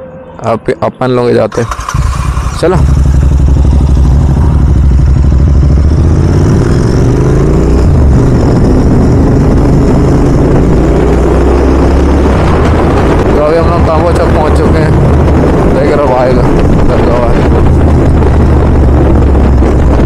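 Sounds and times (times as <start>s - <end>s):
motorcycle engine revving: 1.5s - 20.0s.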